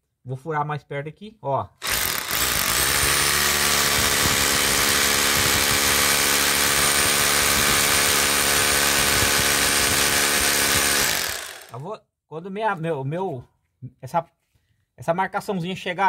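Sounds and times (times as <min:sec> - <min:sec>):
hammer drill boring into masonry: 0:01.8 - 0:11.8.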